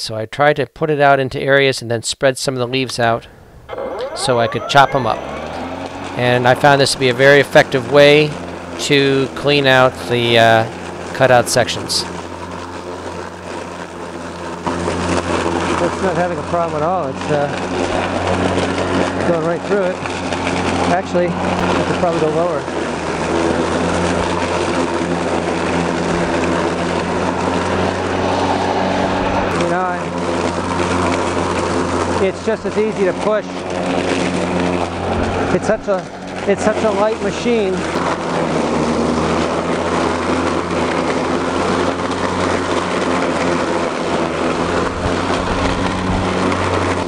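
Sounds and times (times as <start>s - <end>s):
electric lawn mower humming: 3.3s - 47.0s
blade shredding dry leaves: 5.2s - 47.0s.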